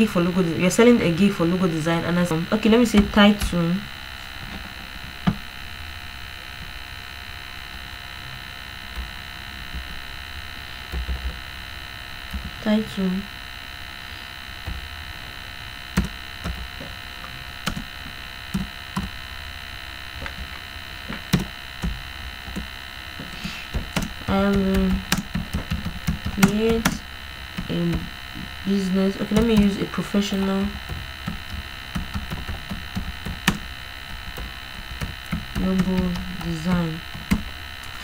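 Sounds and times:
electrical mains hum: 0.0 - 38.0
high whine: 0.0 - 38.0
keyboard clicks: 17.6 - 17.8, 23.7 - 27.0, 29.3 - 29.8, 30.8 - 33.6, 34.3 - 37.5.

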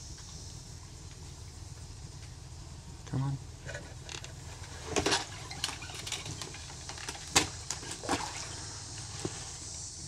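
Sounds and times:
low background noise: 0.0 - 10.0
water splashes: 7.4 - 8.8.

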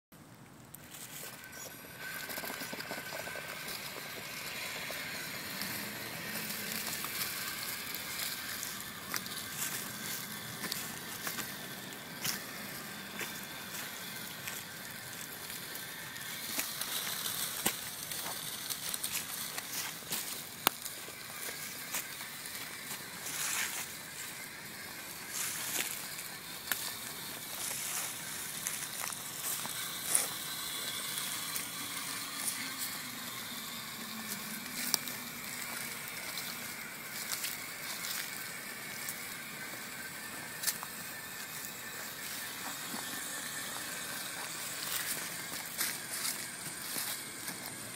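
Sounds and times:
electric motor and gear whine: 0.6 - 47.9
tyres crunching through leaves: 0.8 - 47.9.

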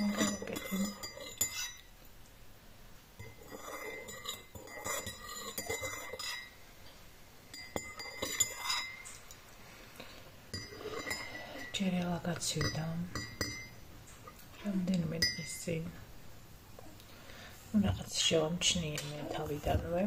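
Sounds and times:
cutlery scraping on a plate: 0.0 - 1.9, 3.2 - 6.5, 7.5 - 9.3, 10.5 - 11.8.

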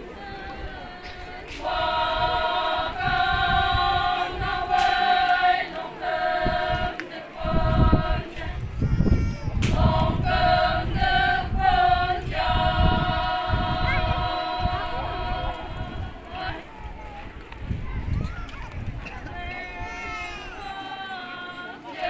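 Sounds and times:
women chanting in unison: 0.0 - 8.6, 9.7 - 16.7, 20.6 - 22.0.

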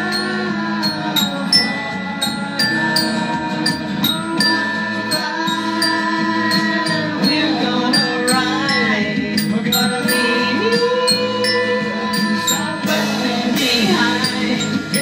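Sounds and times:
glockenspiel notes: 0.0 - 15.0
instrumental backing track: 0.0 - 15.0.

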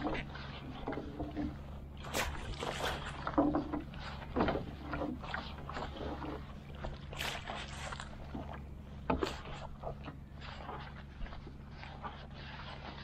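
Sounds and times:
steady low hum: 0.0 - 13.0
water splashes and drips: 0.0 - 13.0.

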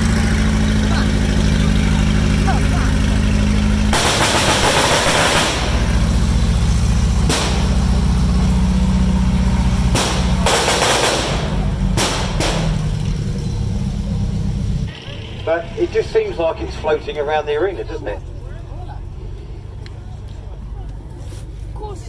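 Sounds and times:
heavy vehicle engine running: 0.0 - 22.0
gunfire bangs: 3.9 - 5.8, 9.9 - 12.8.

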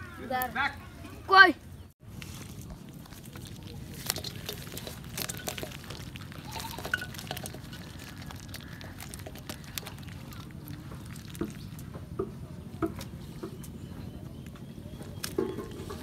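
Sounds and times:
fish flapping in a metal basin: 3.1 - 12.2
water dripping: 3.6 - 12.4.

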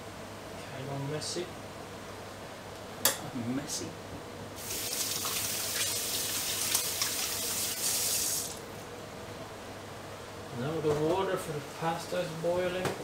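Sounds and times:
tap water running into sink: 4.6 - 8.6.

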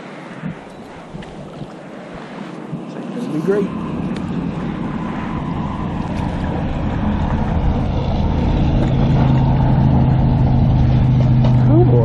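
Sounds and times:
truck rumbling over bridge: 3.7 - 12.0.

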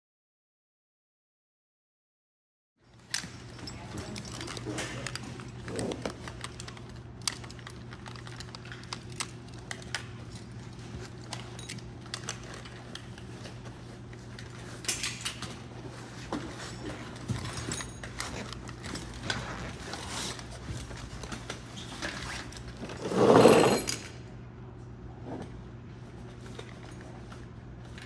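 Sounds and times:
gear clicks rustles and knocks: 2.9 - 23.1, 26.2 - 28.0.

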